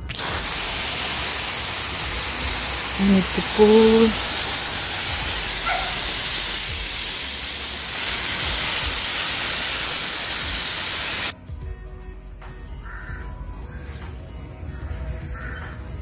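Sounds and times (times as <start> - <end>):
hose spraying water: 0.0 - 11.4.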